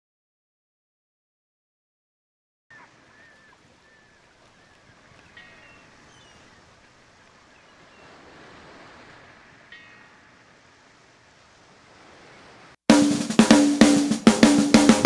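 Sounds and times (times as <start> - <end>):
high bird calls: 2.7 - 10.7
water and wind ambience: 2.7 - 15.0.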